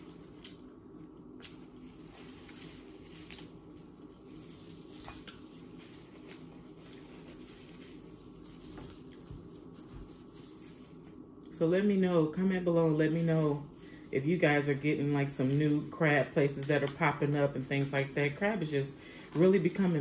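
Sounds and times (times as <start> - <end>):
steady low hum: 0.0 - 20.0
chewing: 4.9 - 6.5.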